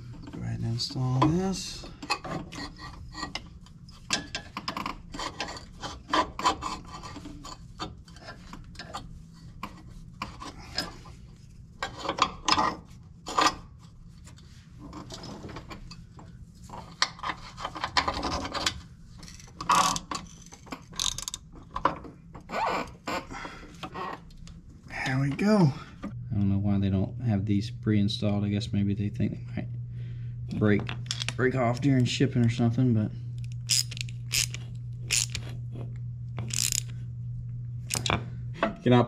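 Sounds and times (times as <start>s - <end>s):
clinks and scrapes of steel parts: 1.9s - 11.2s, 11.8s - 16.0s, 16.6s - 21.4s, 33.7s - 35.6s, 36.4s - 36.9s
ratchet wrench clicking: 19.2s - 21.4s, 33.4s - 35.4s, 36.5s - 36.9s.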